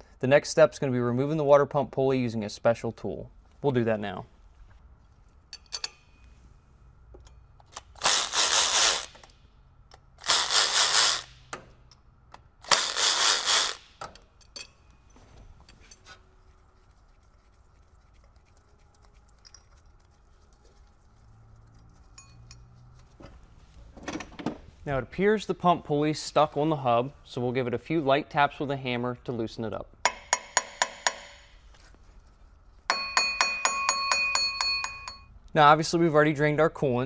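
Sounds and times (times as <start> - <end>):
cordless power tool bursts: 8.0 - 9.2, 10.2 - 11.4, 12.6 - 13.9.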